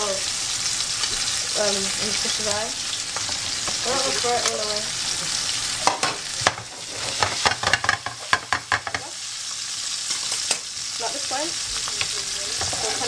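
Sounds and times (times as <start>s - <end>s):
hot oil sizzling in a pan: 0.0s - 13.0s
utensil scraping a pan: 5.8s - 9.0s, 12.5s - 13.0s.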